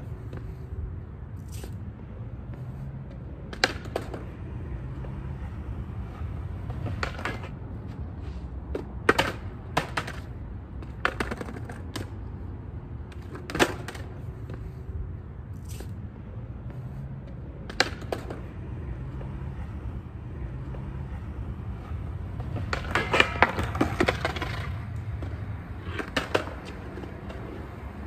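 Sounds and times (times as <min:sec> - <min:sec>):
skateboard wheels rumbling: 0:00.0 - 0:28.0
skateboard clacks: 0:03.2 - 0:07.6, 0:08.7 - 0:12.3, 0:13.0 - 0:14.7, 0:17.6 - 0:28.0.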